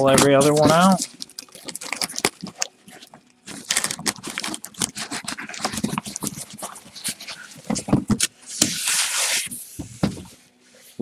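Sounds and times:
cardboard boxes scraping and knocking: 0.0s - 1.1s, 3.5s - 10.4s.

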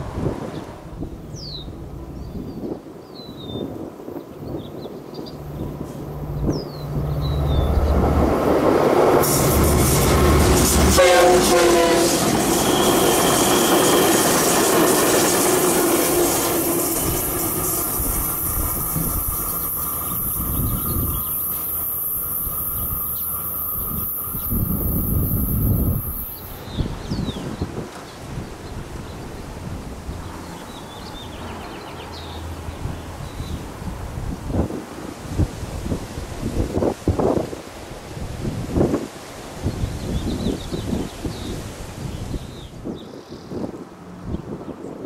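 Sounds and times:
wheels rushing on rail: 0.0s - 45.0s
locomotive engine hum: 5.0s - 26.6s
train horn blast: 9.2s - 14.6s.

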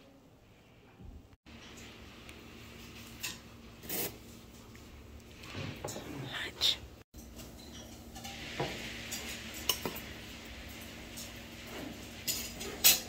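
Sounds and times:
dishes and cutlery clinking: 7.2s - 13.0s.

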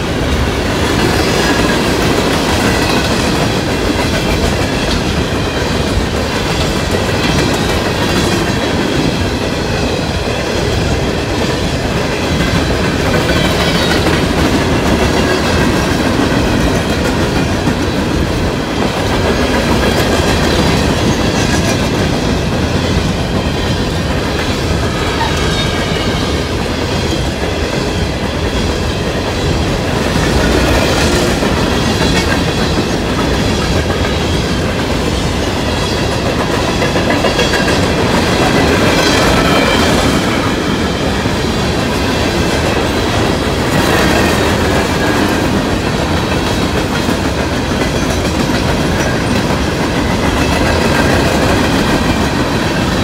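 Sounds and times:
train cars rumbling past: 0.0s - 53.0s
high squealing wheels: 20.4s - 34.6s, 35.4s - 43.2s.

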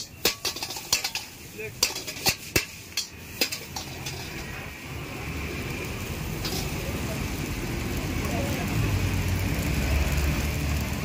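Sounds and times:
metal utensils clanking on wok: 0.0s - 5.4s, 6.0s - 7.6s
food sizzling: 0.0s - 11.0s.

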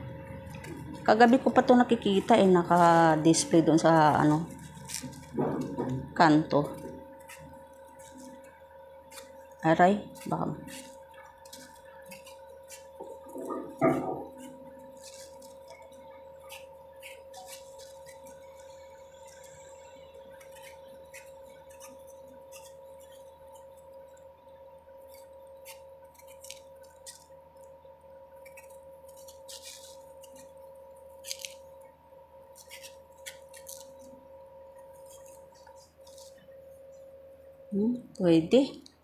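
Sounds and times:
faint high hum: 0.0s - 39.0s
knife scraping mango peel: 0.4s - 24.3s, 25.0s - 37.0s.

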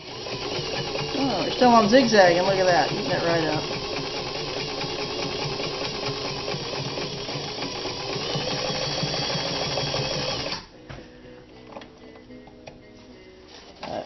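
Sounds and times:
sewing machine stitching: 0.0s - 10.7s.

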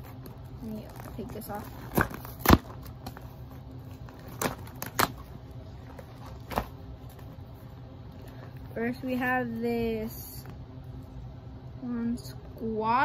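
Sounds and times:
packaging crinkling and tearing: 0.1s - 7.4s.

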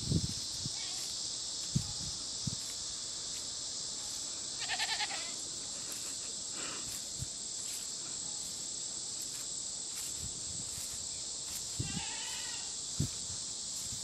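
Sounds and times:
steady high hiss: 0.0s - 14.0s
goat bleating: 4.6s - 5.4s, 11.8s - 12.8s.

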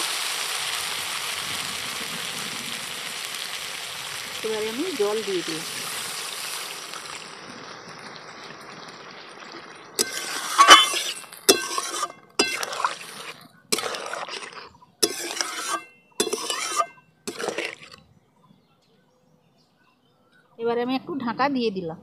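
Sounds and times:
soft watery hiss: 0.0s - 17.9s
spatula scraping metal pan: 9.5s - 18.0s.

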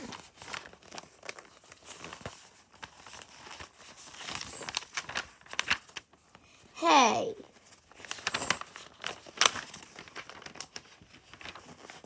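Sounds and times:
paper pages rustling: 0.0s - 6.7s, 7.4s - 12.0s.

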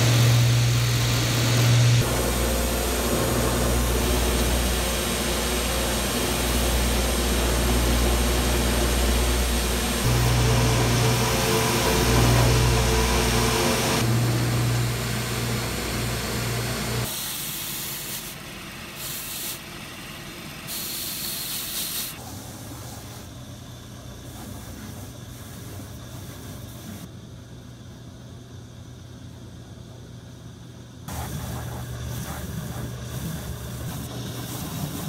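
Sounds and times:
machine humming: 0.0s - 17.1s
brushing hiss: 19.0s - 19.8s, 20.7s - 27.1s, 31.1s - 35.0s
sanding wheel hissing on leather: 24.2s - 27.0s, 31.1s - 35.0s.

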